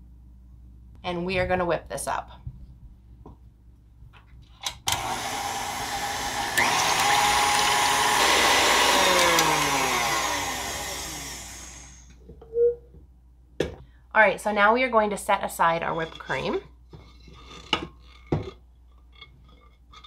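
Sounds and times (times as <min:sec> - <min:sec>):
electric mixer whipping cream: 0:04.9 - 0:12.1.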